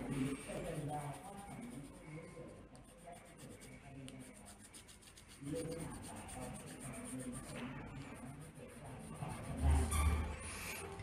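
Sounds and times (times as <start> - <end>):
faint background voices: 0.0 - 11.0
pencil scratching on paper: 0.0 - 11.0.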